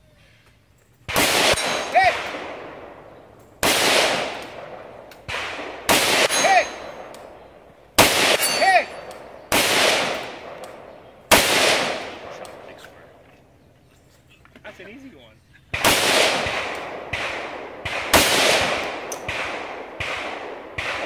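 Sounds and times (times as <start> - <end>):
rifle shots echoing: 1.0 - 13.7, 15.6 - 21.0
steel target ringing: 6.2 - 7.1, 8.2 - 9.2.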